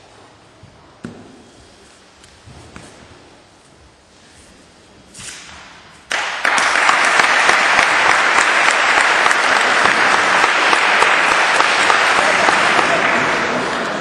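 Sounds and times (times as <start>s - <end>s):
audience clapping: 6.1s - 14.0s.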